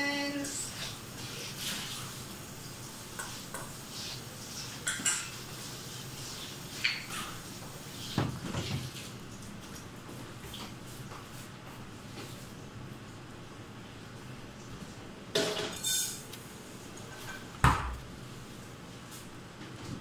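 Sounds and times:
utensils and dishes clinking: 0:04.6 - 0:05.5, 0:15.4 - 0:16.3.

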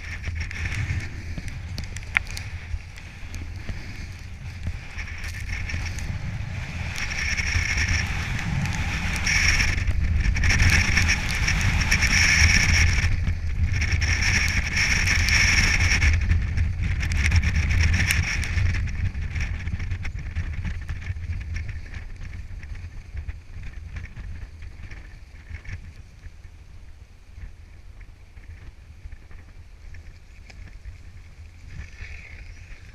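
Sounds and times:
snowboard hissing through snow: 0:00.0 - 0:16.3
low wind rumble: 0:00.0 - 0:32.9.

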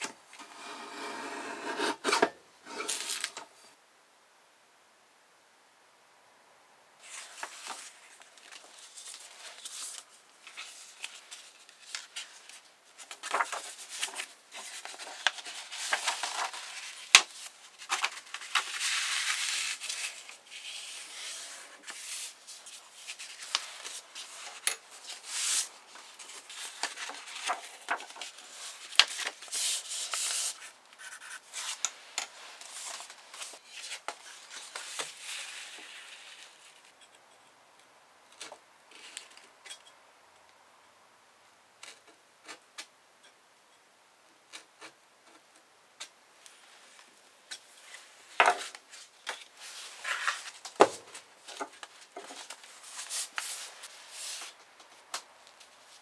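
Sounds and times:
paper rustling and sliding: 0:07.0 - 0:36.8, 0:47.8 - 0:54.6.

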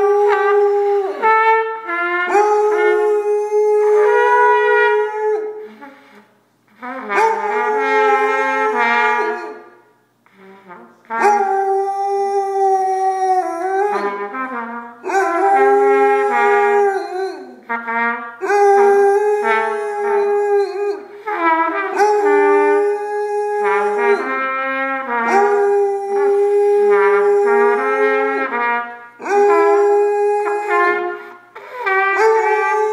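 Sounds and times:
dog howling: 0:00.0 - 0:01.3, 0:02.3 - 0:05.6, 0:07.2 - 0:09.7, 0:11.2 - 0:14.2, 0:15.0 - 0:17.6, 0:18.4 - 0:21.1, 0:21.9 - 0:24.5, 0:25.2 - 0:28.6, 0:29.2 - 0:31.2, 0:31.9 - 0:32.9
trumpet playing slow tune: 0:00.0 - 0:32.9.

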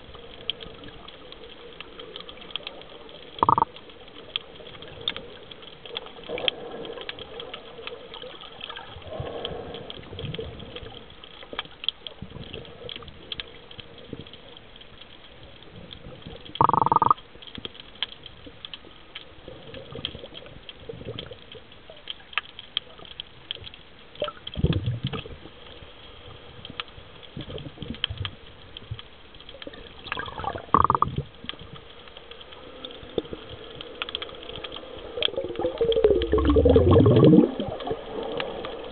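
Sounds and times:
faint crackle: 0:00.0 - 0:38.9
diver's exhaled bubbles gushing: 0:16.6 - 0:17.2, 0:29.8 - 0:31.3, 0:35.0 - 0:38.9.

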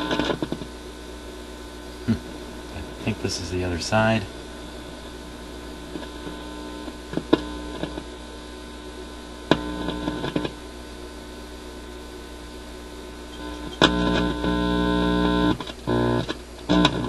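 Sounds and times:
sharp clicks and crackles: 0:00.0 - 0:00.7, 0:05.9 - 0:08.1, 0:09.5 - 0:10.6, 0:15.5 - 0:17.0
mains hum: 0:00.0 - 0:17.0.

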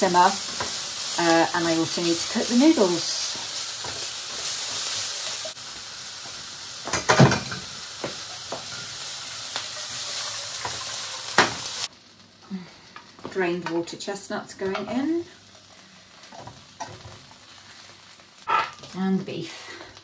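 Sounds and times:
vegetables sizzling in a frying pan: 0:00.0 - 0:20.0
spatula knocking and scraping pan: 0:06.2 - 0:11.7.

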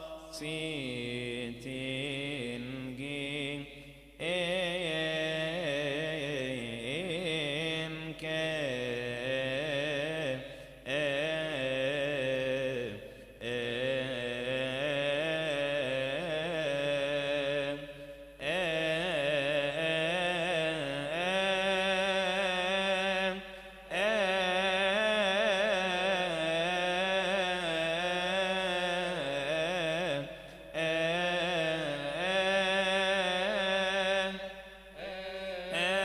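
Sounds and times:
men chanting a hymn: 0:00.0 - 0:36.0.

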